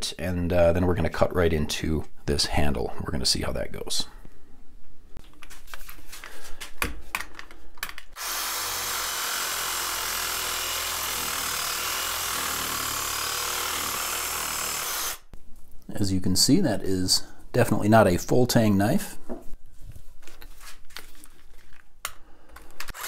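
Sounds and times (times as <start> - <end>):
handling knocks and clicks: 5.2 - 8.2
power saw cutting plastic: 8.2 - 15.3.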